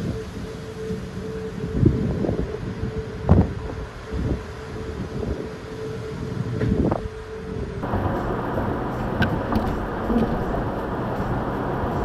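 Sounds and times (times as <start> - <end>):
wind gusts on microphone: 0.0 - 12.0
bridge humming tone: 7.0 - 12.0
car road noise: 7.0 - 12.0.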